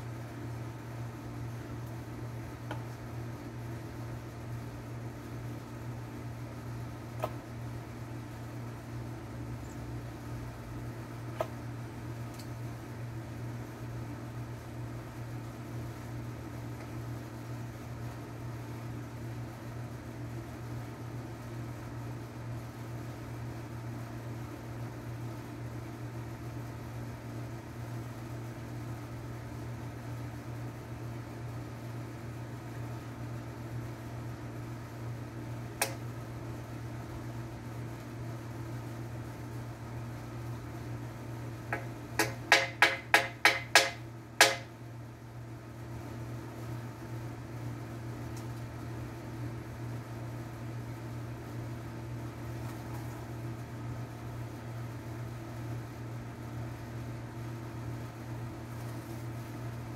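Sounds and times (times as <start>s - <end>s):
steady low hum: 0.0s - 59.9s
hammer striking nails into wood: 42.2s - 44.7s.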